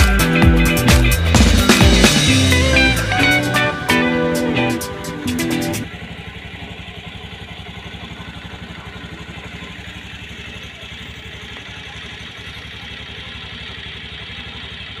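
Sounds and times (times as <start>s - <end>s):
engine idling with low thudding: 5.8s - 15.0s.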